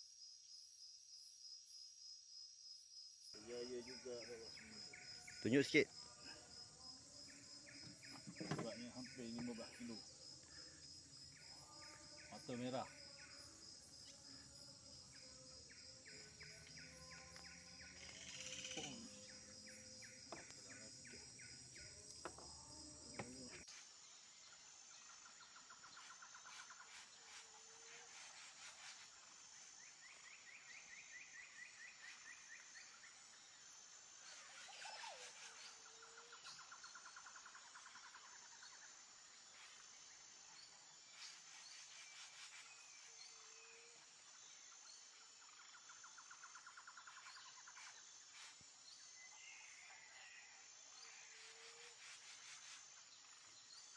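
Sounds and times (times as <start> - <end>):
insect drone: 0.0 - 53.9.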